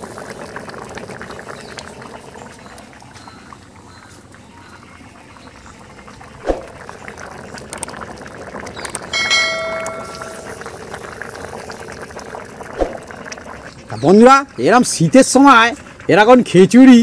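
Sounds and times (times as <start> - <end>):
thick stew bubbling in a wok: 0.0 - 17.0
bell-like chime: 9.2 - 10.7.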